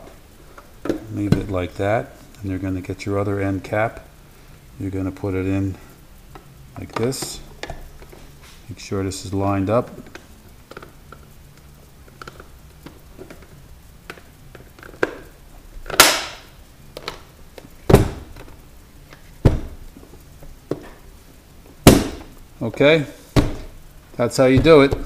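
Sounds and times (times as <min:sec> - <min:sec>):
plastic parts clicking: 0:12.1 - 0:15.3
sharp plastic knocks: 0:14.1 - 0:18.6, 0:19.4 - 0:19.8, 0:21.8 - 0:22.4, 0:23.3 - 0:23.8, 0:24.5 - 0:25.0.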